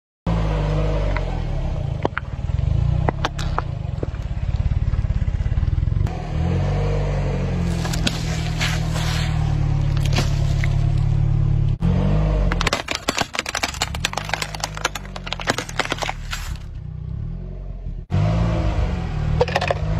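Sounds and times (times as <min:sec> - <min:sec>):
car engine running: 0:00.8 - 0:18.2
tubes cracking under tyre: 0:01.9 - 0:05.3, 0:07.6 - 0:11.4, 0:12.4 - 0:16.9.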